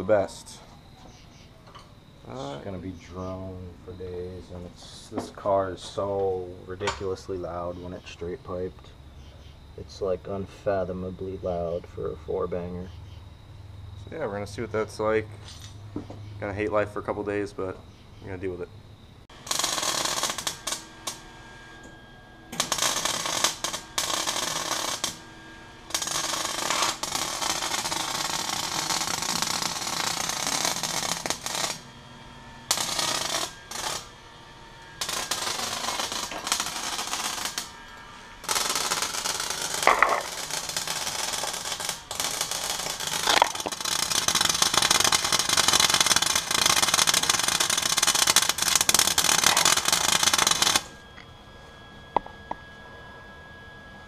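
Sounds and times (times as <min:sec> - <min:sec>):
welder crackling and sputtering: 0:19.3 - 0:51.2.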